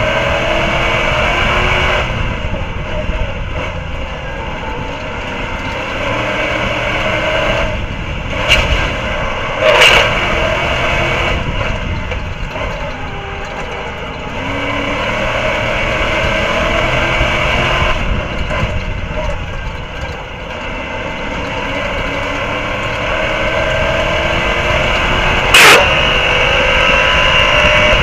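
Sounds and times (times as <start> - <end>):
racing truck engine revving: 0.0 - 28.0
road and wind noise: 0.0 - 28.0
sharp bangs: 25.4 - 26.3.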